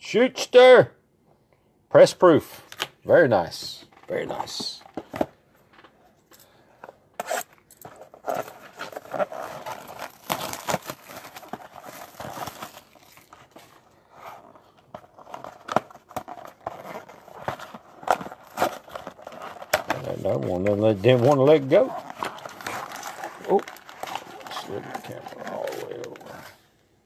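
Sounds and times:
cardboard box tearing: 7.2s - 26.6s.

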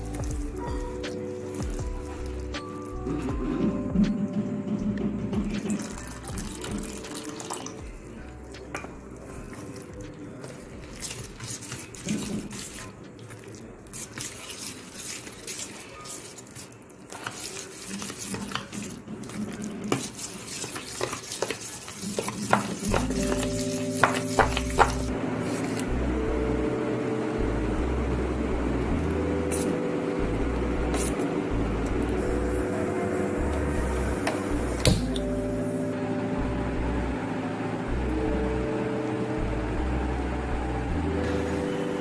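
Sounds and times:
spoon stirring wet batter: 0.0s - 3.9s, 5.0s - 25.9s.

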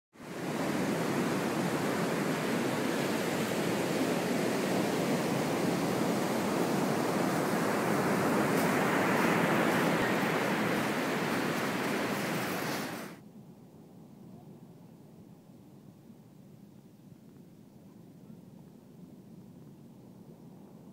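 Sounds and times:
ocean surf washing onto beach: 0.2s - 13.2s.

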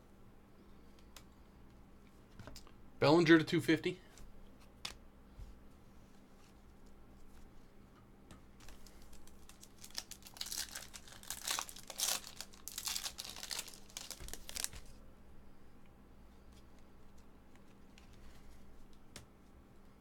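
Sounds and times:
foil wrapper tearing and crinkling: 8.6s - 15.0s.

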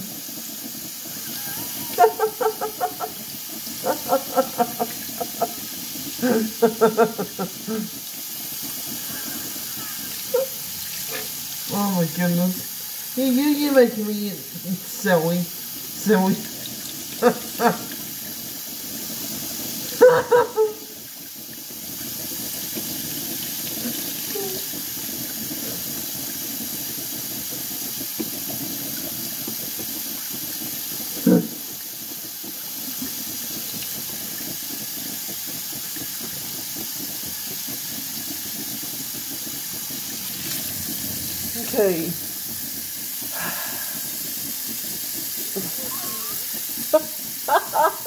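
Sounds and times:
faucet running: 0.0s - 48.0s
water splashing into steel sink: 39.3s - 42.6s.

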